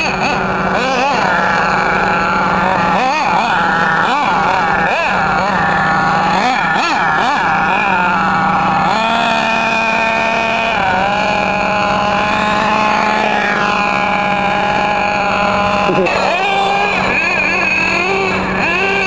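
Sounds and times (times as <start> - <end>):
model car engine revving: 0.0 - 19.0.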